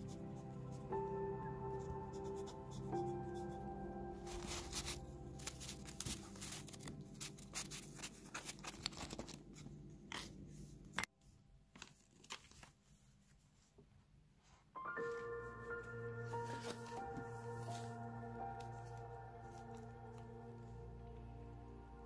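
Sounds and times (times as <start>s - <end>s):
paper rustling and crinkling: 4.2s - 11.1s, 11.7s - 13.7s, 15.0s - 20.2s.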